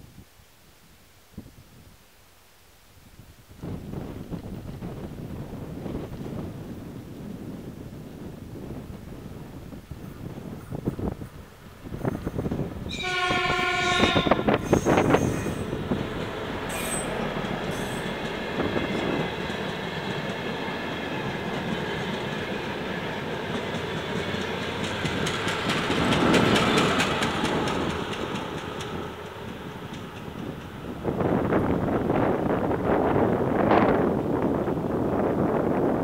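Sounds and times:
diesel train engine running: 10.0 - 32.6
train horn: 12.9 - 15.7
wheels clicking over rail joints: 21.2 - 30.8.

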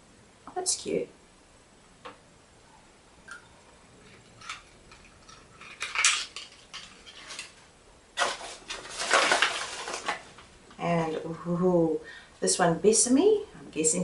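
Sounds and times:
packaging rustling and clatter: 4.0 - 7.6, 8.2 - 10.5.

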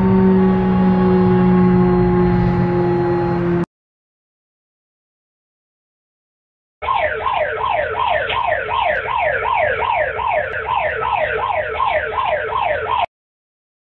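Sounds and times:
wailing emergency alert alarm: 0.0 - 3.6, 6.8 - 13.1.

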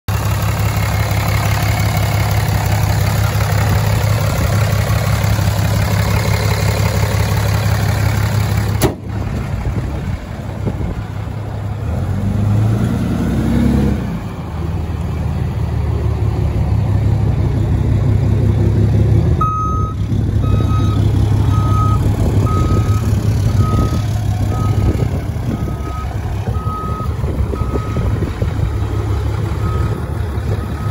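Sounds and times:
diesel engine idling: 0.1 - 13.4, 14.0 - 30.9
reversing alarm beeping: 19.4 - 28.2.

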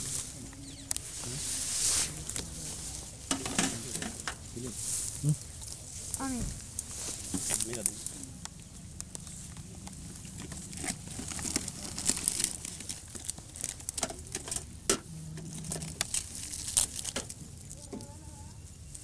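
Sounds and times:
medicine packets crinkling: 7.4 - 8.1, 9.0 - 14.6, 15.5 - 17.8.

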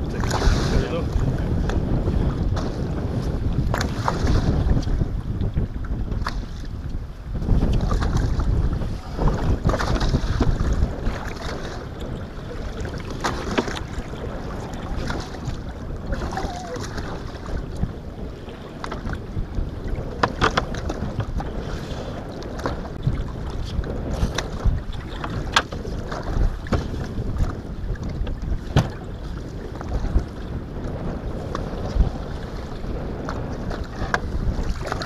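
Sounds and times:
water sloshing against boat: 0.0 - 35.0
wind buffeting microphone: 0.0 - 35.0
sharp knocks and clicks: 20.2 - 20.8.

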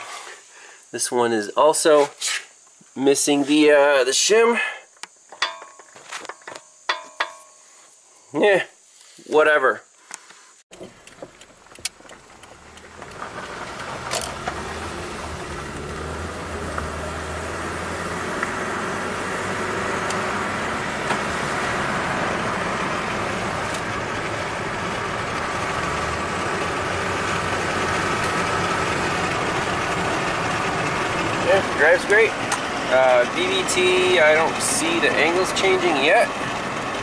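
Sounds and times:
car engine and road noise: 10.7 - 37.0.

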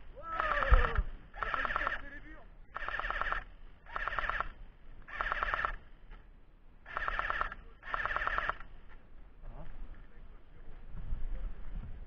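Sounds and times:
airsoft gun full-auto bursts: 0.4 - 2.1, 2.7 - 5.8, 6.9 - 8.7.

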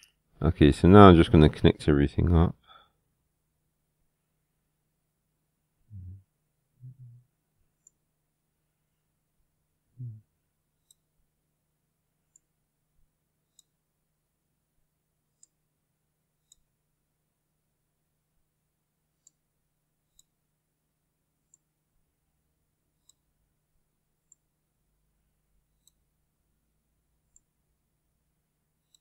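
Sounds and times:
low steady hum: 0.0 - 29.0
computer mouse clicks: 10.8 - 11.1, 20.1 - 20.4, 23.0 - 23.2, 25.8 - 26.0.

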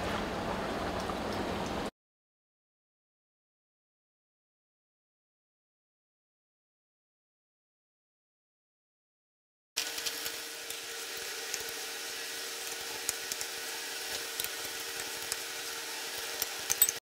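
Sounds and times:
fish deep-frying in hot oil: 9.8 - 17.0.

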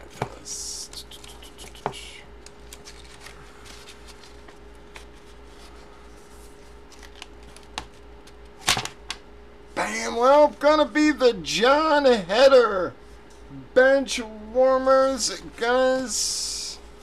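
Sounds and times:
faint electrical hum: 0.0 - 17.0
paper rustling and crinkling: 2.5 - 8.9.

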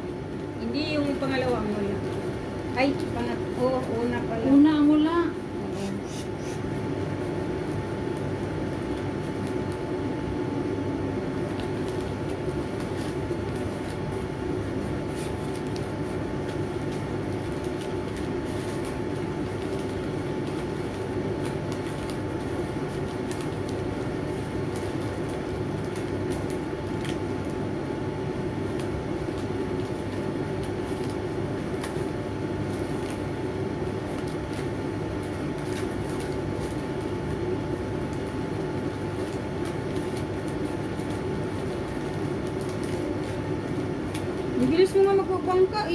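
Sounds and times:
steady mechanical hum: 0.0 - 45.9
paper crinkling while folded: 0.4 - 45.9.

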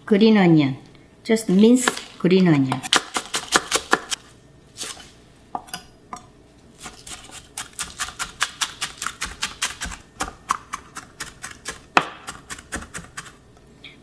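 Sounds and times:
knife chopping on wooden board: 6.8 - 13.3.

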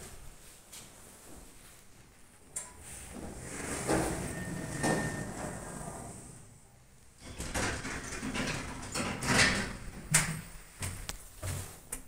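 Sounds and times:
footsteps: 10.7 - 12.0.

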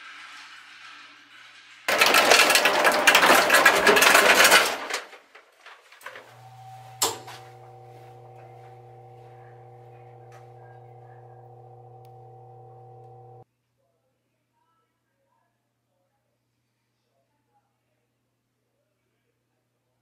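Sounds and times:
ice machine humming: 1.9 - 5.1, 6.0 - 13.4
ice clattering: 1.9 - 5.2.

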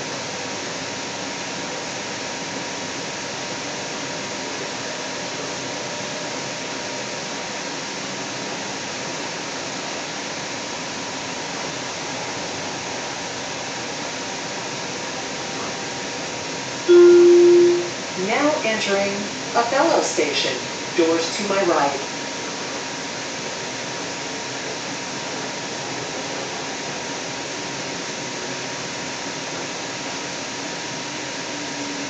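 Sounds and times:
rushing noise inside train car: 0.0 - 32.0
faint steady whine: 16.8 - 22.8.

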